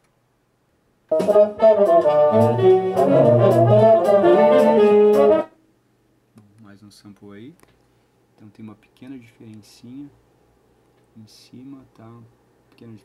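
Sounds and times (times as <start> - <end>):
recorded music through loudspeaker: 1.1 - 5.5.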